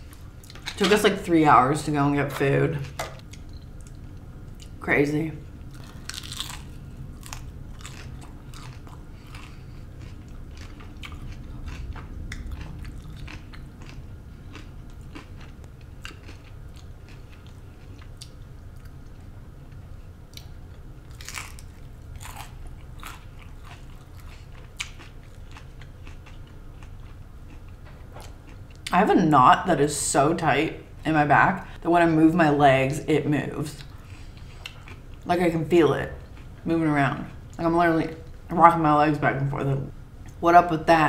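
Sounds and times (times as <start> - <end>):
low hum: 0.0 - 41.0
person chewing crunchy food: 5.7 - 28.9, 33.8 - 35.3.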